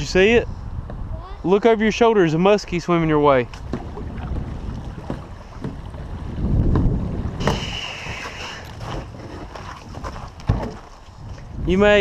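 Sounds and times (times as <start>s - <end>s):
wind buffeting microphone: 0.0s - 12.0s
water sloshing in shallows: 2.6s - 11.7s
brief hiss: 7.4s - 8.6s.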